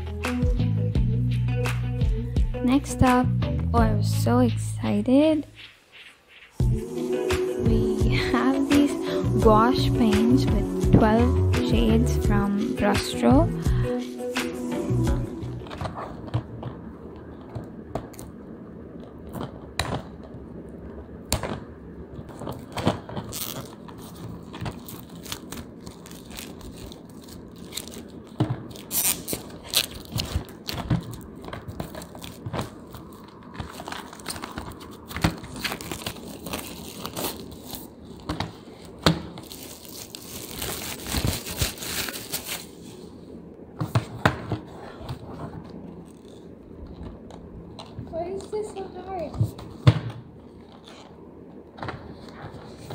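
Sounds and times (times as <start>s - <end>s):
plastic wrapping crinkling and tearing: 22.2s - 43.0s.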